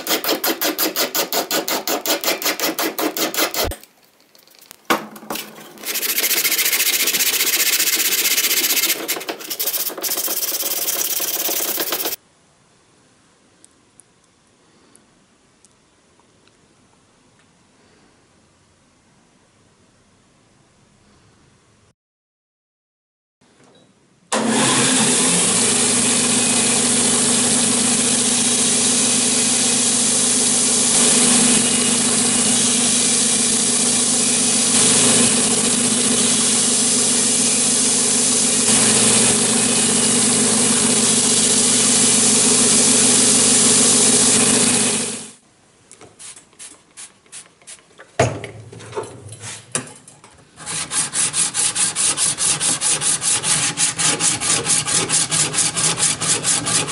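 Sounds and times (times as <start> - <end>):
belt grinder grinding steel: 0.0 - 3.8, 5.6 - 12.2, 50.6 - 56.9
iron rubbed on sharpening plate: 0.0 - 3.8, 5.8 - 12.2
metal scrapes: 5.4 - 12.2, 49.2 - 55.1.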